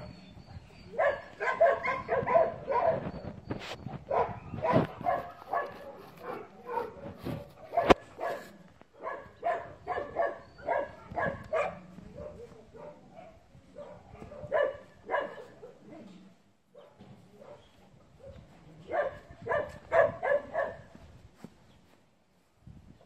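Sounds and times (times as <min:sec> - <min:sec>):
dog barking: 0:00.9 - 0:03.1, 0:04.0 - 0:16.0, 0:16.7 - 0:20.9.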